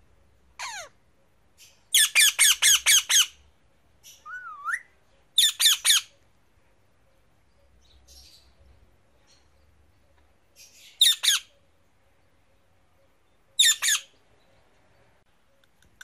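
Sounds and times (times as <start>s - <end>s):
parakeet calling: 0.6s - 1.0s, 1.6s - 3.4s, 4.0s - 6.2s, 10.6s - 11.6s, 13.6s - 14.2s.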